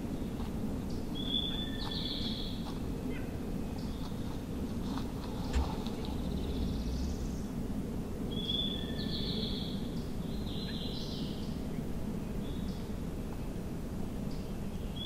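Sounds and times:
low outdoor background rumble: 0.0 - 15.0
small songbirds singing: 0.2 - 4.4, 8.3 - 12.9.

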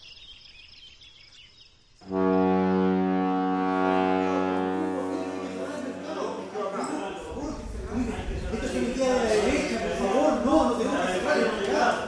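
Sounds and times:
low horn tone: 2.0 - 6.5.

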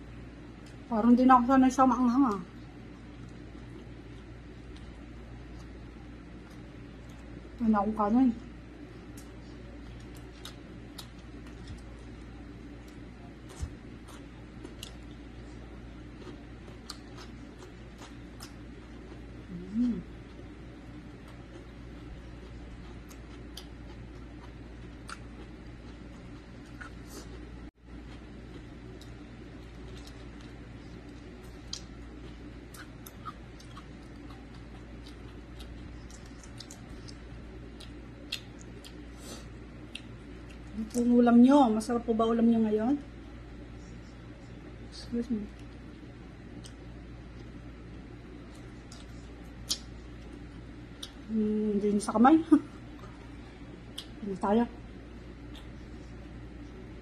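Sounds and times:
low hum: 0.0 - 57.0
wet chewing: 9.1 - 41.1, 48.4 - 51.3, 52.9 - 54.2, 55.4 - 56.2.

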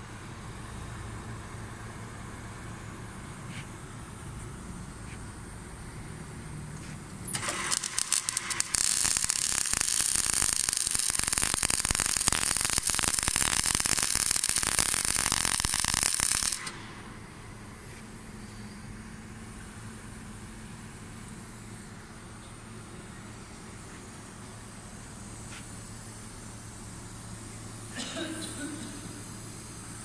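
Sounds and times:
welding arc crackling: 7.3 - 17.3.

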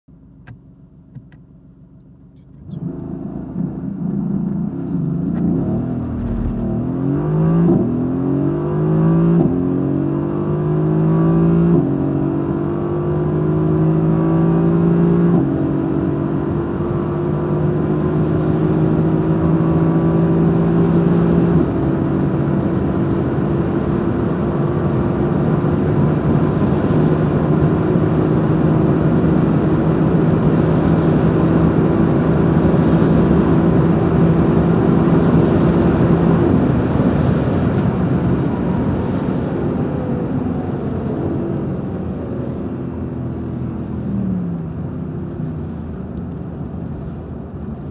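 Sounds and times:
car engine accelerating hard: 2.6 - 47.9
gear upshifts: 4.8 - 7.0.

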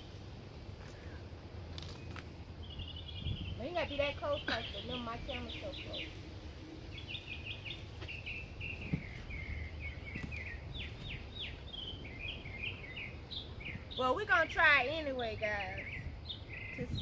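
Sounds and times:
low outdoor rumble: 0.0 - 17.0
small bird chirping: 1.8 - 6.2, 6.9 - 17.0.

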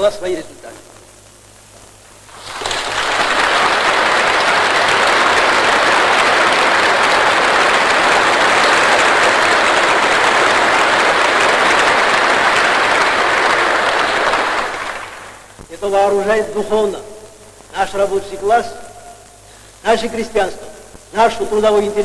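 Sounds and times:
audience applauding: 2.3 - 15.5.

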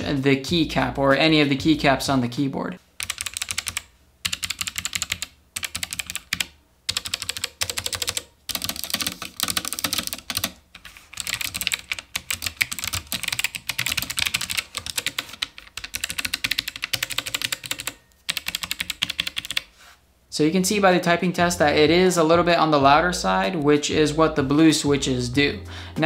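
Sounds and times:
mechanical keyboard typing: 3.0 - 19.7.

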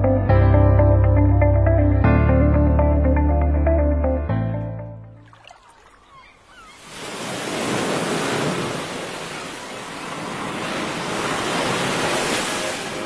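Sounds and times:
waves breaking on a beach: 5.2 - 13.0.

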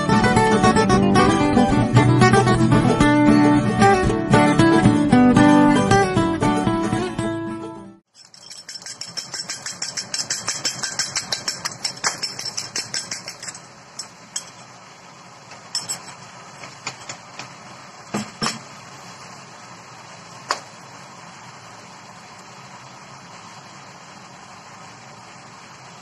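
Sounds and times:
utensil clinking against bowl: 8.1 - 14.6, 15.6 - 16.2.

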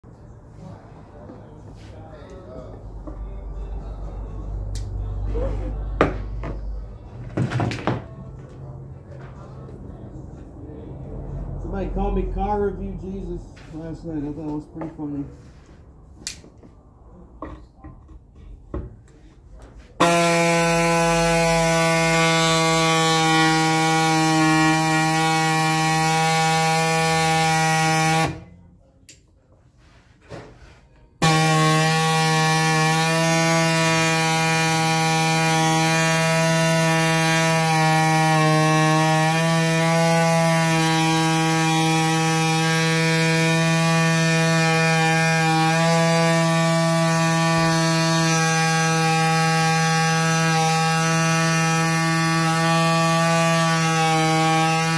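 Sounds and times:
handheld grinder running: 20.0 - 28.4, 31.2 - 54.9.

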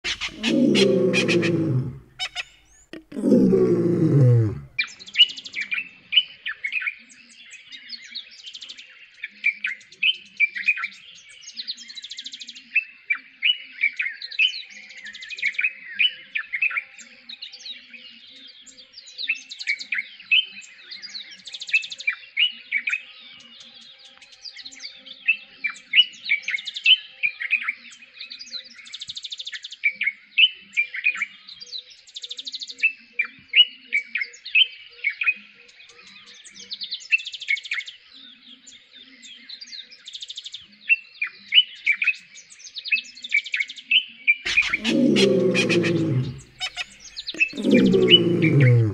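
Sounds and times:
birdsong chirps and whistles: 0.1 - 4.6, 44.5 - 48.9.

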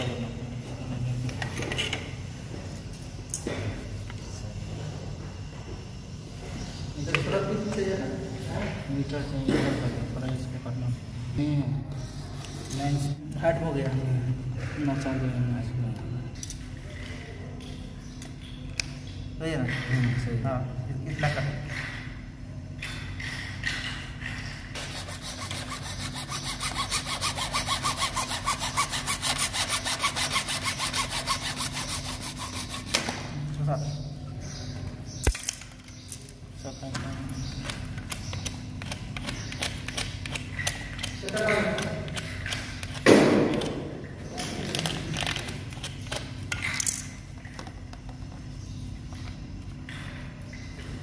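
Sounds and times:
hand saw cutting plastic pipe: 24.8 - 33.1.

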